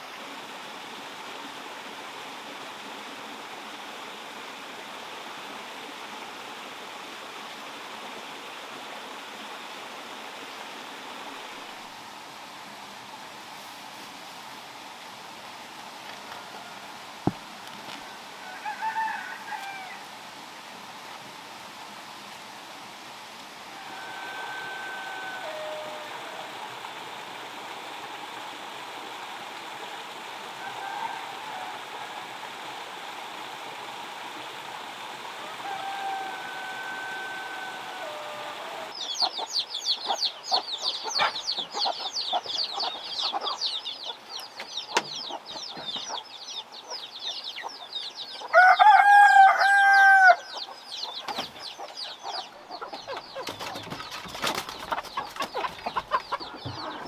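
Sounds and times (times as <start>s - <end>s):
outdoor background hiss: 0.0s - 57.0s
rooster crowing: 16.3s - 17.0s, 18.4s - 20.1s, 23.7s - 26.8s, 30.6s - 32.4s, 35.4s - 39.0s, 48.5s - 50.6s.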